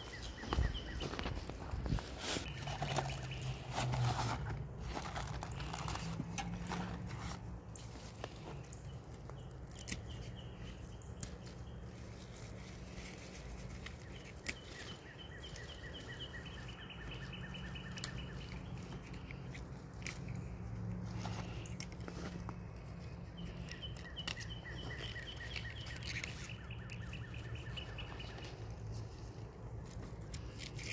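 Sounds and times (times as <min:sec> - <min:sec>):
pea vines rustling and crunching: 0:00.0 - 0:30.9
bird trilling chirps: 0:14.0 - 0:19.4, 0:23.4 - 0:28.7.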